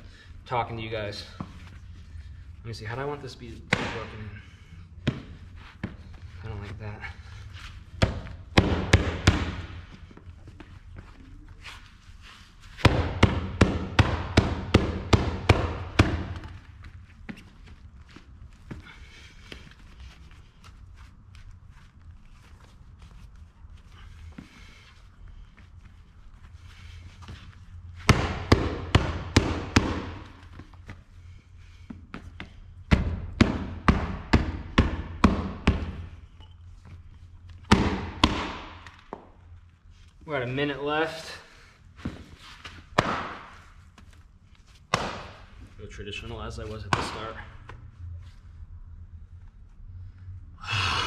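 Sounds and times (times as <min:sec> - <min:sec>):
mallet pounding leather glove: 0:03.7 - 0:04.1, 0:08.0 - 0:09.7, 0:12.8 - 0:16.6, 0:28.0 - 0:30.4, 0:32.9 - 0:36.1, 0:37.7 - 0:39.2, 0:43.0 - 0:43.5, 0:44.9 - 0:45.5.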